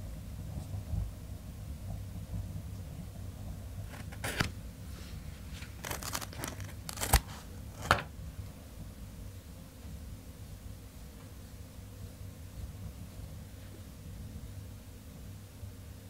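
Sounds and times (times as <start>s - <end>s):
scissors snipping hair: 5.8s - 8.0s.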